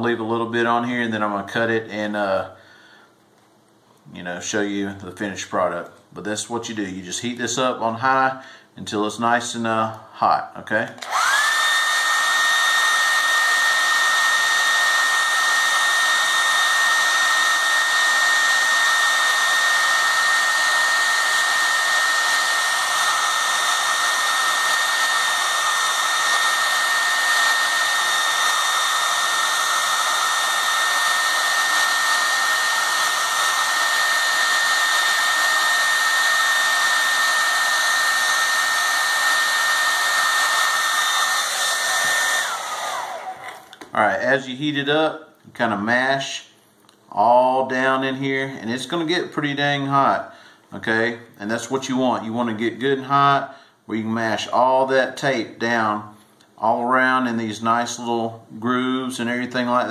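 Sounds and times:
hair dryer running: 0:10.9 - 0:43.9.

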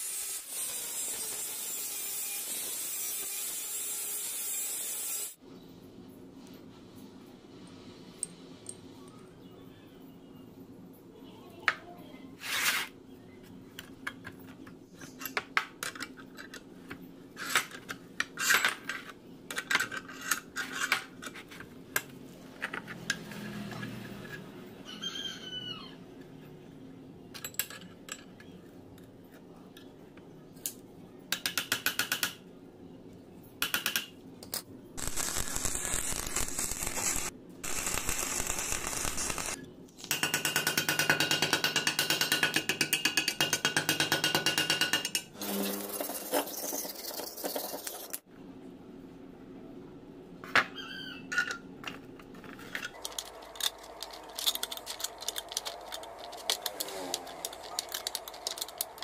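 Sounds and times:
steel parts clinking: 0:51.3 - 0:59.0
metal grating rattles: 0:52.6 - 0:59.0.

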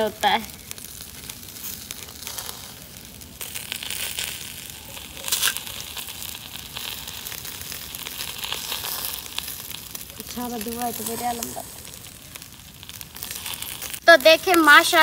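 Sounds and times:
ghee sizzling on a grill: 0:00.0 - 0:15.0.

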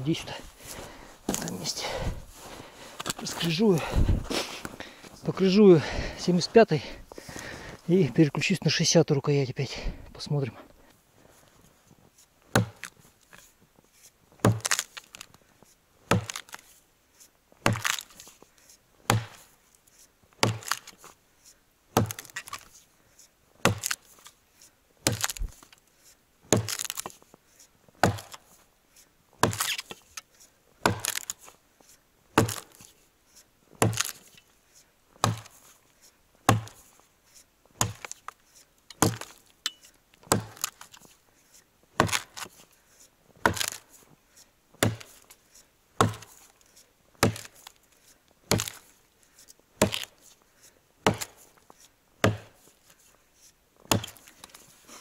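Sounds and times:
axe chopping dry log: 0:12.5 - 0:13.0, 0:14.4 - 0:15.3, 0:16.1 - 0:16.6, 0:17.6 - 0:18.3, 0:19.0 - 0:19.5, 0:20.4 - 0:21.0, 0:22.0 - 0:22.7, 0:23.6 - 0:24.2, 0:25.0 - 0:25.7, 0:26.5 - 0:27.2, 0:28.0 - 0:28.6, 0:29.4 - 0:30.2, 0:30.8 - 0:31.5, 0:32.4 - 0:32.9, 0:33.8 - 0:34.4, 0:35.2 - 0:35.7, 0:36.4 - 0:37.0, 0:37.8 - 0:38.3, 0:38.9 - 0:41.1, 0:42.0 - 0:42.6, 0:43.4 - 0:43.9, 0:44.8 - 0:45.4, 0:46.0 - 0:46.5, 0:47.2 - 0:47.8, 0:48.5 - 0:48.9, 0:49.8 - 0:50.3, 0:51.0 - 0:51.6, 0:52.2 - 0:52.8, 0:53.8 - 0:54.6.

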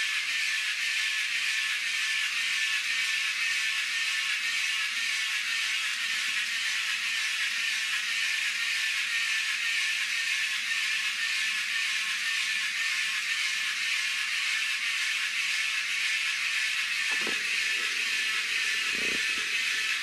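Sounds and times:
toy motor high whir: 0:00.0 - 0:20.0.

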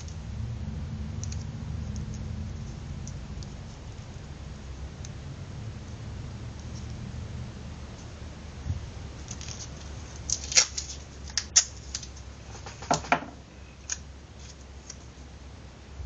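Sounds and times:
paper and foil clicks and crinkles: 0:09.3 - 0:12.8.

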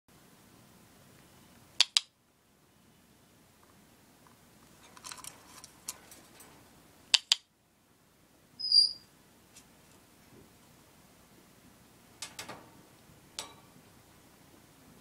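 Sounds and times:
sharp clicks: 0:01.8 - 0:02.1, 0:07.1 - 0:07.5
parrot squeak: 0:08.6 - 0:09.1.

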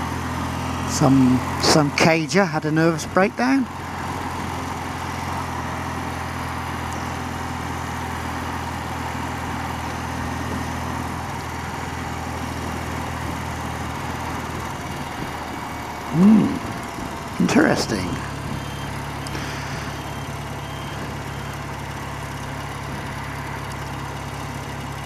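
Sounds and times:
motorcycle engine running steadily: 0:00.0 - 0:25.0.

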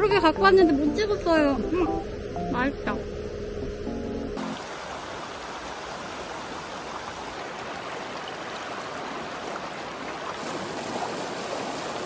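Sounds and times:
stream rushing over rocks: 0:04.4 - 0:12.0.

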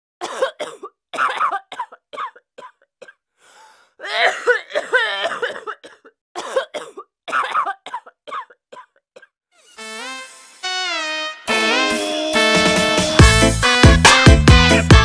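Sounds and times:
woman coughing: 0:00.2 - 0:03.2, 0:04.0 - 0:09.3
quick breath in: 0:03.4 - 0:04.0.

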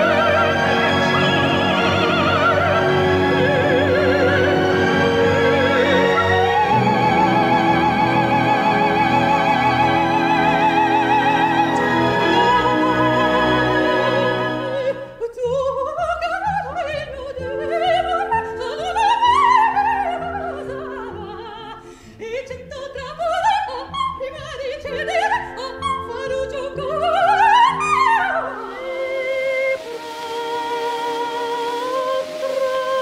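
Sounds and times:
orchestral accompaniment: 0:00.0 - 0:15.4, 0:23.0 - 0:33.0
soprano singing: 0:00.0 - 0:33.0.

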